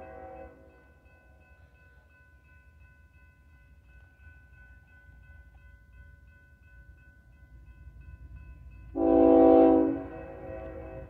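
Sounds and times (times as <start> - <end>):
crossing bell ringing: 0.0 - 11.0
train rumble: 0.0 - 11.0
locomotive horn blast: 9.0 - 11.0.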